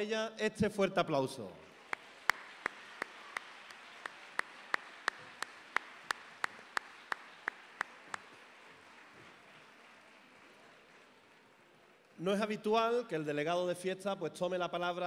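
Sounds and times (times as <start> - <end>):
audience applause: 1.7 - 12.2
man clapping hands: 1.9 - 11.1.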